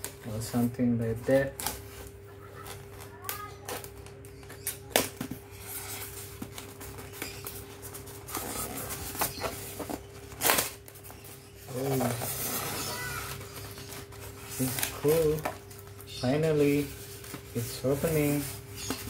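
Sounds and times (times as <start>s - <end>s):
styrofoam rubbing and creaking: 1.4s - 19.0s
styrofoam snapping: 10.3s - 10.9s.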